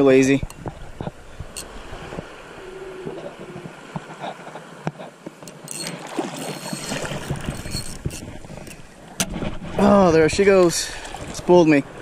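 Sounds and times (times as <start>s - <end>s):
water sloshing and lapping: 0.0s - 12.0s
fishing reel clicks: 5.5s - 8.2s.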